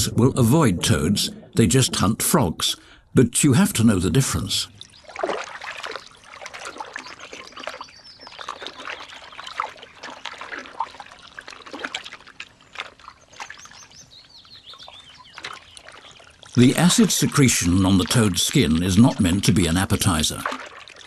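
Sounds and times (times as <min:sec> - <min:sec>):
trickling water: 0:00.0 - 0:21.0
otter splashing in water: 0:04.8 - 0:13.9, 0:14.8 - 0:21.0.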